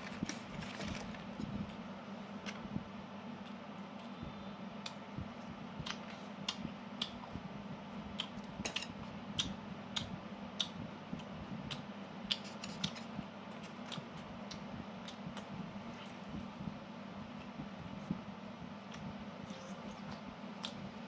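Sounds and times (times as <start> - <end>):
steady low hum: 0.0 - 21.0
sharp mouth clicks and smacks: 5.8 - 7.2, 9.4 - 13.0
chewing and biting chicken: 8.1 - 16.6.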